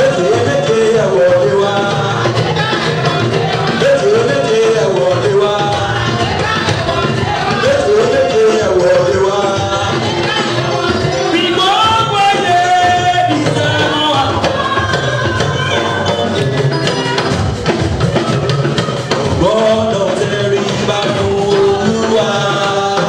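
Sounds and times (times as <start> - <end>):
drums and percussion beat: 0.0 - 23.0
group singing worship song: 0.0 - 23.0.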